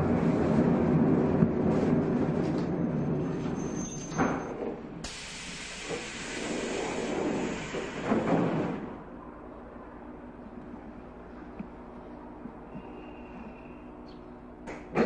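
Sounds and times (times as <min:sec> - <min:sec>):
electric train rumbling: 0:00.0 - 0:15.0.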